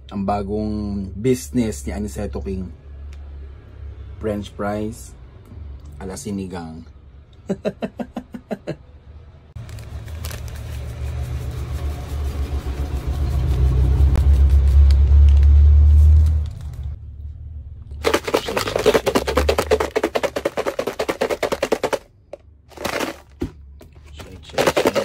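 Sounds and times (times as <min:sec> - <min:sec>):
fries rattling in plastic cup: 0:09.6 - 0:12.6, 0:18.0 - 0:22.1, 0:22.7 - 0:23.5, 0:24.2 - 0:25.0
powder pouring from plastic packet: 0:09.6 - 0:16.7, 0:18.0 - 0:22.0, 0:22.7 - 0:23.5, 0:24.2 - 0:25.0.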